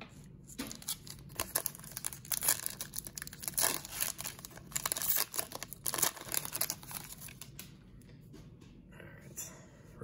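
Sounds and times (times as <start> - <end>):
wrapper being torn open: 0.7 - 7.5.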